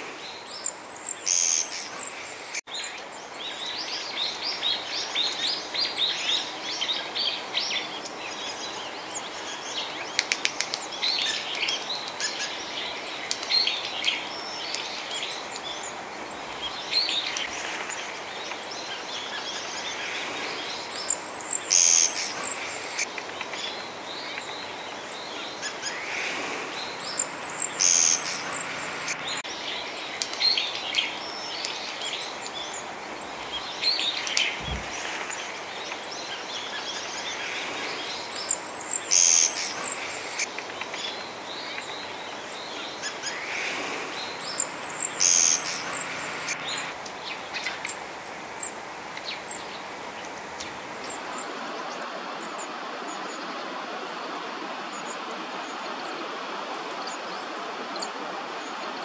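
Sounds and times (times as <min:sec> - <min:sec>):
steady outdoor hiss: 0:00.0 - 0:59.0
faint bird calls: 0:03.9 - 0:51.5
bird trilling: 0:25.6 - 0:29.4, 0:43.0 - 0:47.0.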